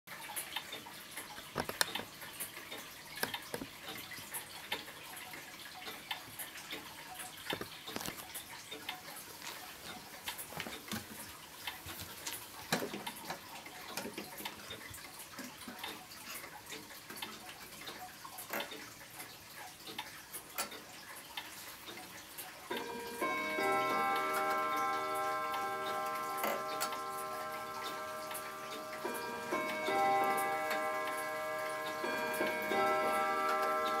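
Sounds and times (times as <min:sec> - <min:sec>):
clock ticking: 0:00.1 - 0:34.0
sharp clicks and knocks: 0:01.5 - 0:04.1, 0:07.5 - 0:08.9.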